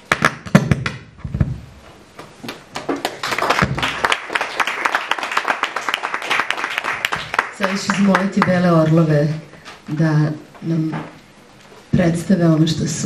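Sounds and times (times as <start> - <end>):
audience applause: 3.0 - 8.6.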